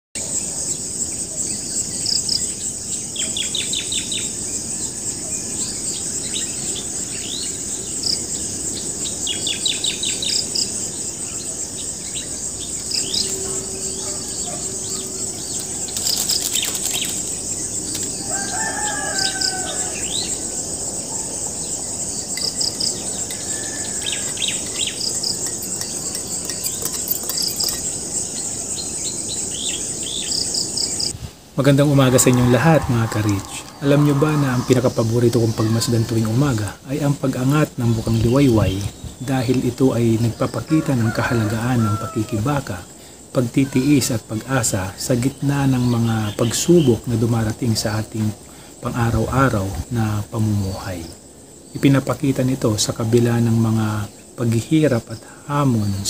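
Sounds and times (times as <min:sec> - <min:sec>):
insects shrilling: 0:00.2 - 0:56.0
bird chirps and trills: 0:05.5 - 0:31.1
rooster crowing: 0:13.1 - 0:16.0, 0:17.9 - 0:21.8, 0:22.4 - 0:27.8, 0:31.8 - 0:36.0, 0:40.5 - 0:42.8.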